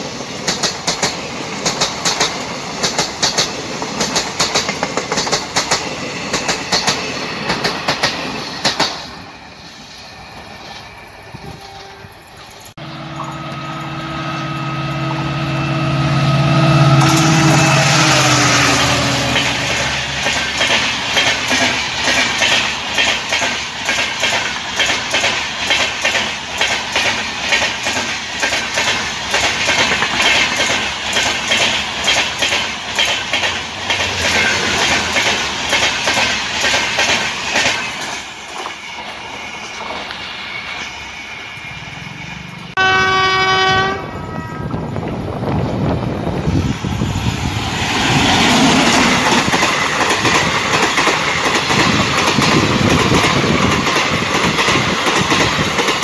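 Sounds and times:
clickety-clack of train wheels: 0.0s - 13.7s, 16.9s - 56.0s
train horn: 11.4s - 20.2s, 42.7s - 44.8s.

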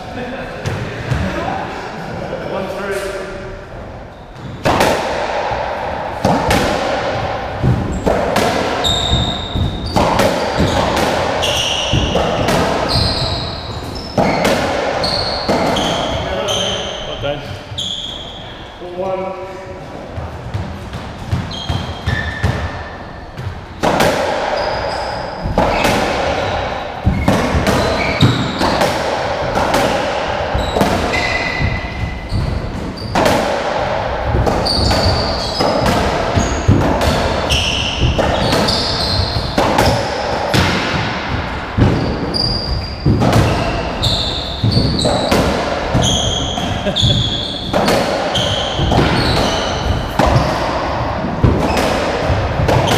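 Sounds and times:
ball smacks on rackets and walls: 6.2s - 13.4s, 23.4s - 24.8s, 25.4s - 43.7s, 44.6s - 46.7s, 47.7s - 52.9s
shoe squeaks on court floor: 8.8s - 18.7s, 21.4s - 23.4s, 24.5s - 28.8s, 30.6s - 33.2s, 34.6s - 40.2s, 42.0s - 45.3s, 46.0s - 50.7s.

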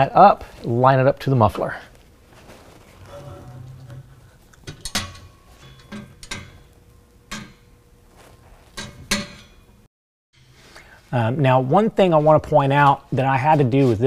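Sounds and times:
exhaust pipe clinking and knocking: 3.0s - 9.8s.

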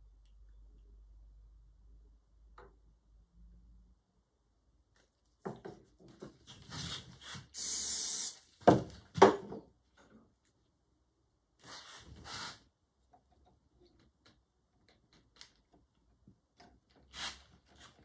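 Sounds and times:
aerosol spray hiss: 7.5s - 8.5s.

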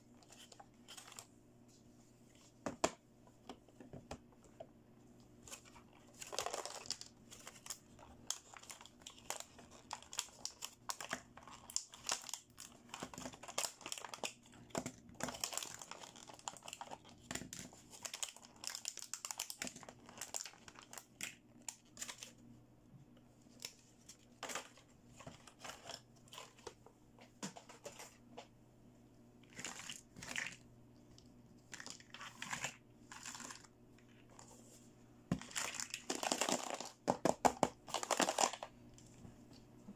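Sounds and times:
plastic packaging crinkling: 5.5s - 22.4s, 31.6s - 34.2s, 35.3s - 38.7s.

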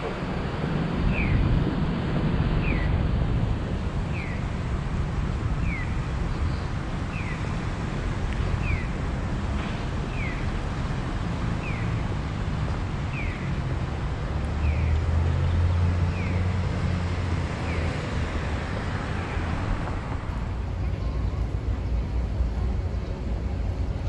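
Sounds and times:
wind on microphone: 0.0s - 11.4s
street traffic: 0.0s - 24.0s
vehicle passing with low rumble: 9.0s - 24.0s.

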